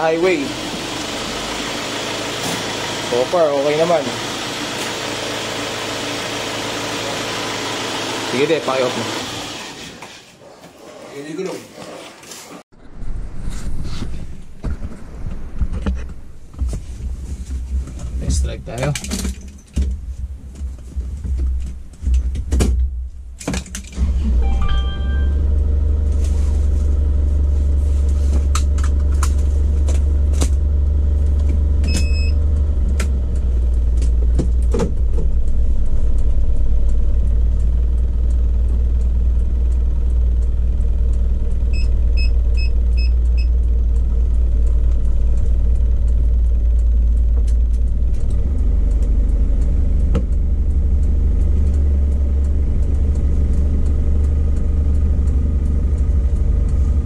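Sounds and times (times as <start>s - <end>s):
engine and road noise rumble: 0.0s - 10.4s, 11.1s - 57.0s
short beeps: 24.4s - 25.6s.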